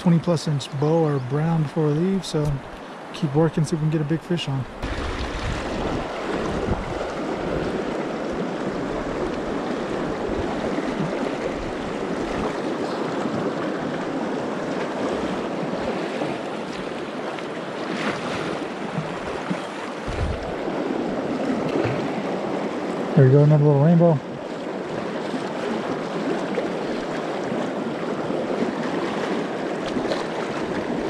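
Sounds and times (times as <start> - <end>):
rushing river water: 0.0 - 31.0
wind gusts on microphone: 4.6 - 17.1, 17.8 - 23.2.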